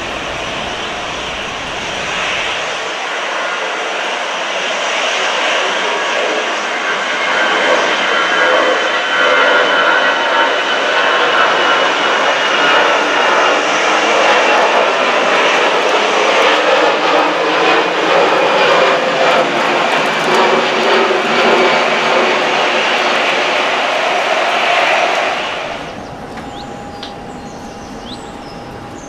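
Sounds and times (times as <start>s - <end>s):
jet engines roaring overhead: 0.0s - 29.0s
high whining tones: 9.6s - 29.0s.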